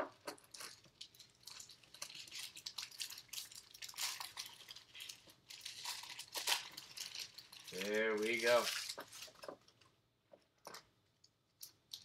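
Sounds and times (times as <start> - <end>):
wrapper tearing and crinkling: 0.4 - 9.8.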